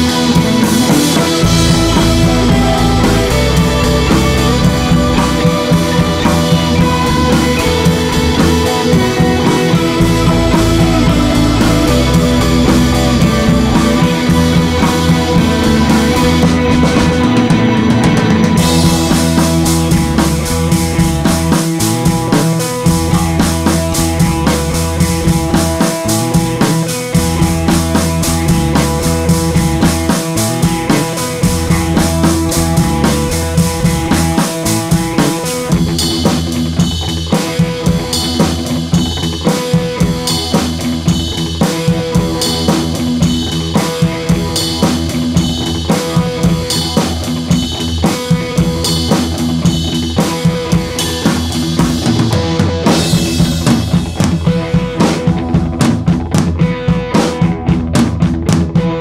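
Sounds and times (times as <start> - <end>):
upbeat music with drum beat: 0.0 - 59.0.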